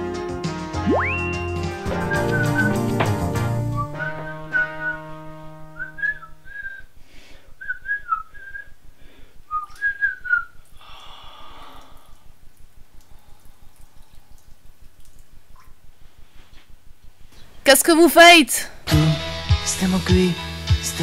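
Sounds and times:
man whistling a tune: 0.8s - 6.9s, 7.6s - 8.8s, 9.5s - 10.6s.

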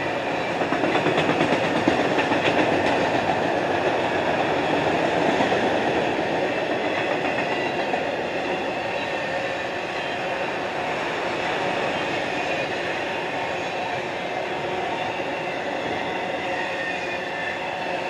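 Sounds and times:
freight cars rattling on rails: 0.0s - 9.1s.

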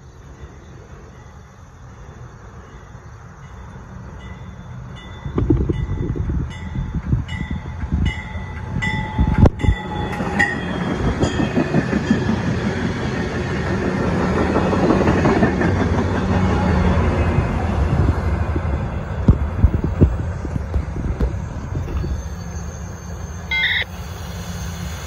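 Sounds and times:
diesel locomotive droning: 0.0s - 25.0s
train coaches rushing past: 0.1s - 25.0s
train bell ringing: 0.4s - 12.6s, 22.0s - 25.0s.

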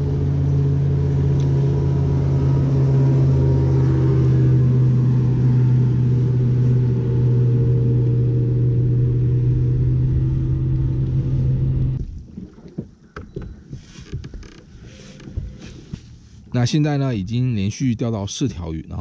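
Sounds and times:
electric trolling motor humming: 0.0s - 12.0s.

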